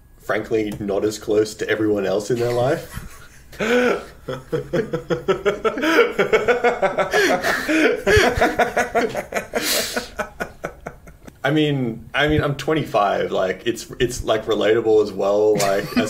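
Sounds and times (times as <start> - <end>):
men laughing: 2.8 - 11.4, 15.6 - 16.0
breathy exhale: 9.6 - 10.2.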